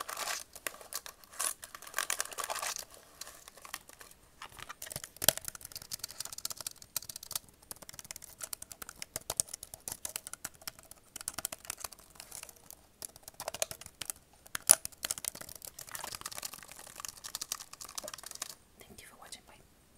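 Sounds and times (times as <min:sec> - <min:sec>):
fast typing on laptop keyboard: 0:01.7 - 0:18.6.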